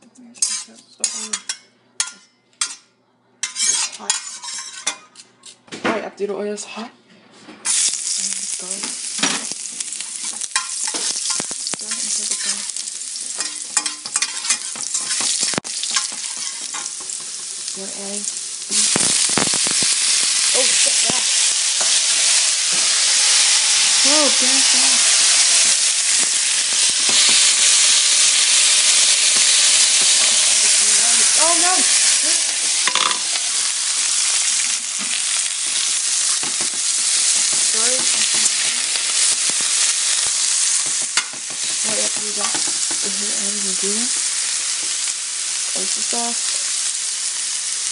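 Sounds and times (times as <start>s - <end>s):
metal spatula scraping pan: 0.4s - 2.8s, 3.4s - 5.6s, 10.5s - 17.4s
garlic sizzling in hot oil: 7.7s - 47.9s.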